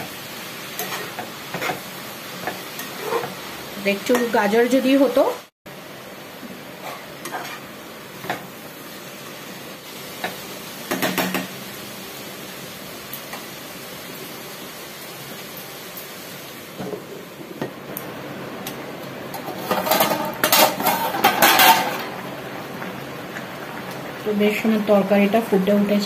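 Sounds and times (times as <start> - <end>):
pot lid clanking: 19.3 - 22.1.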